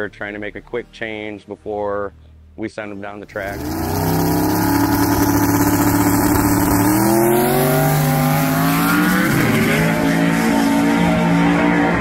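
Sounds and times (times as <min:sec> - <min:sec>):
truck engine accelerating hard: 0:03.4 - 0:12.0.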